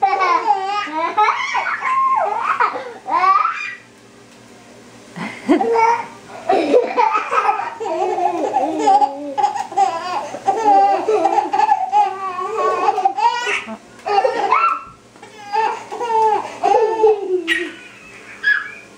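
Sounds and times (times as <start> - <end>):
baby girl giggling: 5.5 - 14.7, 15.4 - 18.8.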